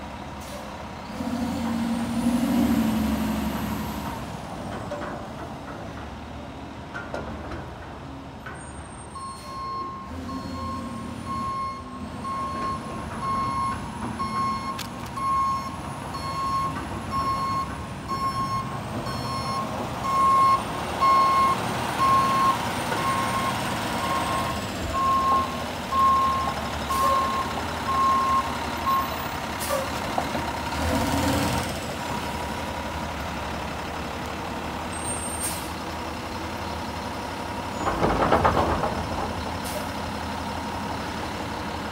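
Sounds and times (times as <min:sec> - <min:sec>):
reverse alarm beeping: 0:09.2 - 0:29.2.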